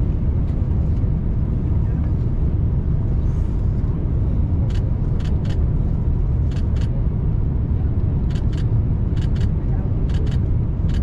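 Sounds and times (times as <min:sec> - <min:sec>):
airliner cabin rumble: 0:00.0 - 0:11.0.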